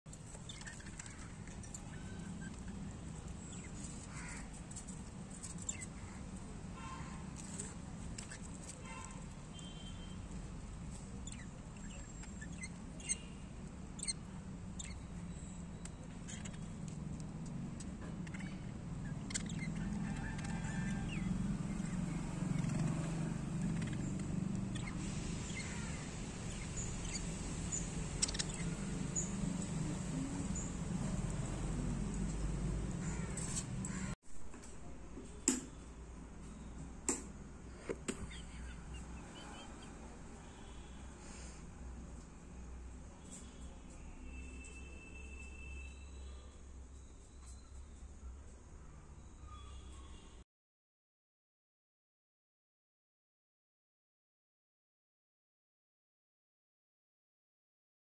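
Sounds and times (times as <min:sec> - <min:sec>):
faint chirping: 0:00.2 - 0:32.5, 0:43.2 - 0:50.4
budgerigars chirping: 0:11.2 - 0:13.4, 0:14.0 - 0:16.8, 0:18.2 - 0:30.8, 0:38.2 - 0:40.0
budgerigar harsh calls: 0:23.6 - 0:27.3.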